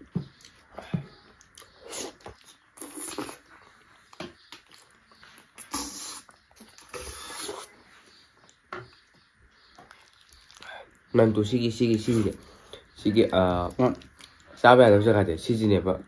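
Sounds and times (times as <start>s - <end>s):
wet lips smacking and sucking: 1.4s - 3.7s, 4.6s - 7.8s.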